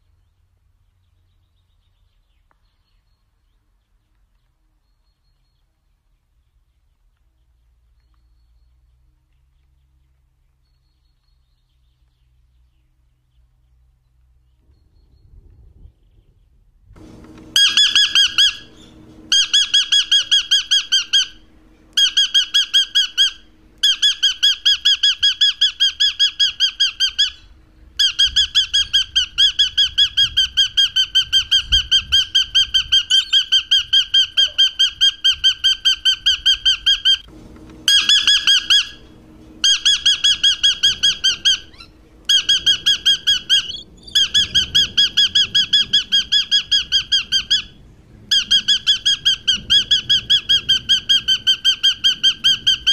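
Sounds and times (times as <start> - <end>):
lorikeet shrill screeching calls: 17.5 - 37.2, 37.8 - 52.9.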